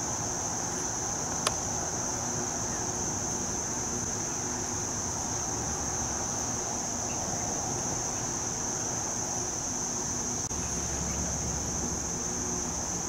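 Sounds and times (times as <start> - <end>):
distant traffic rumble: 0.0 - 13.0
insect chorus: 0.0 - 13.0.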